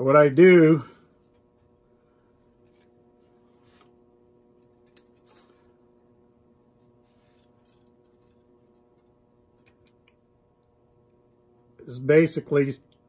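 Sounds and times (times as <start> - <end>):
faint steady hum: 0.0 - 13.0
wire ticks and scrapes: 2.5 - 6.0, 7.1 - 10.2.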